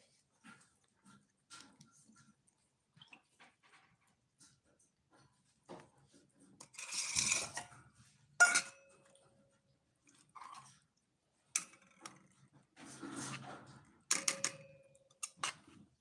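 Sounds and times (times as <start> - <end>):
cats chewing food: 0.0 - 6.6
metal bowl clinks: 8.4 - 9.0.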